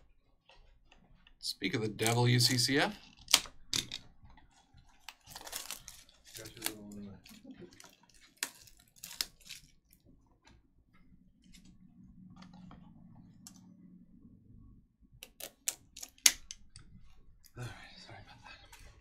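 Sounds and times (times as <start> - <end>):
cardboard and shrink wrap crackling: 4.4 - 10.1.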